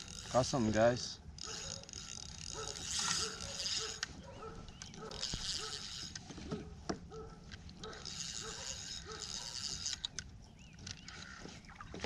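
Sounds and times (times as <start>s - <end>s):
fishing reel whirring: 0.0s - 6.2s, 7.7s - 10.2s.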